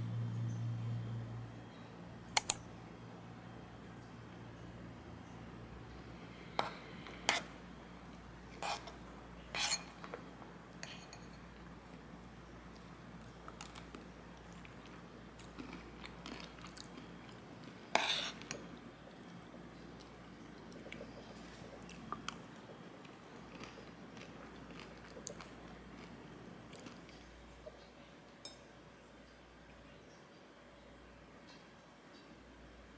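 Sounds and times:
quiet chewing: 12.7 - 27.9.

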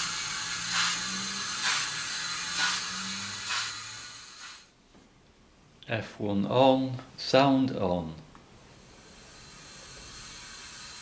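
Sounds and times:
steam locomotive chuffs: 0.0 - 4.6
steady low hum: 0.0 - 11.0.

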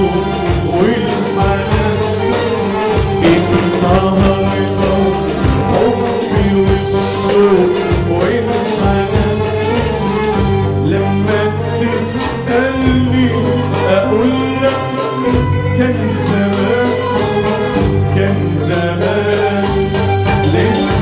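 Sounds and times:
oud: 0.7 - 10.4
violin: 2.7 - 7.5
sustained bass: 3.1 - 8.5
percussion beat: 3.2 - 7.2
keyboard melody: 3.2 - 7.9.

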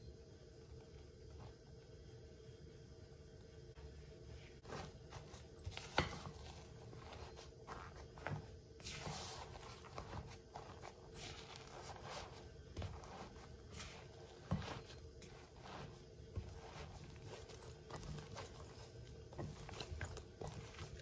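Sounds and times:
spatula scraping in glass bowl: 4.7 - 21.0.

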